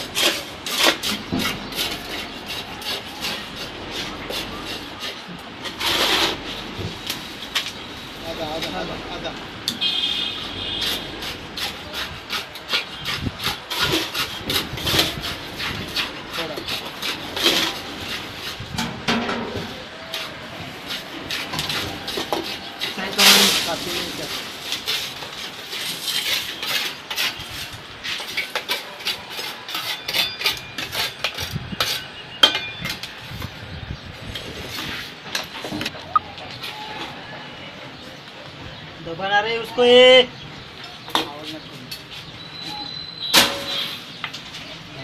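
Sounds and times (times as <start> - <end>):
rod scraping and knocking concrete: 0.0 - 7.8, 10.6 - 33.5.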